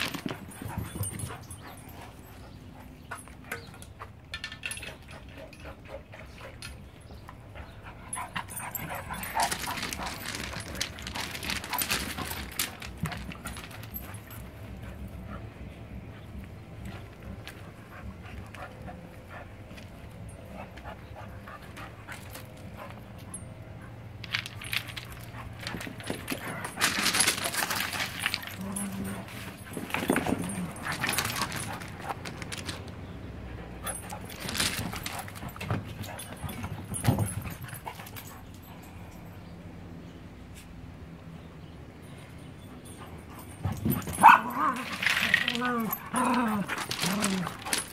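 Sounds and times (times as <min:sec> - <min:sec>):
dogs scuffling: 0:00.0 - 0:06.9, 0:07.6 - 0:38.7, 0:43.3 - 0:47.9
dog noises: 0:42.5 - 0:47.9.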